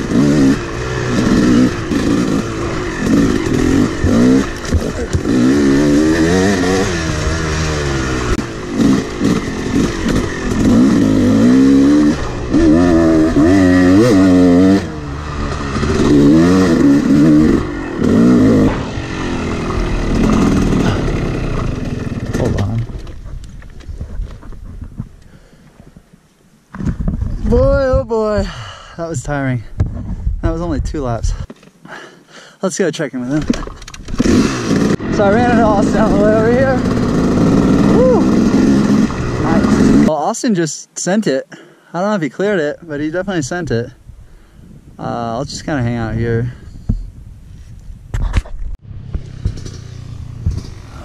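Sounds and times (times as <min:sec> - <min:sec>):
dirt bike engine revving: 0:00.0 - 0:23.1, 0:34.1 - 0:40.1, 0:48.8 - 0:51.0.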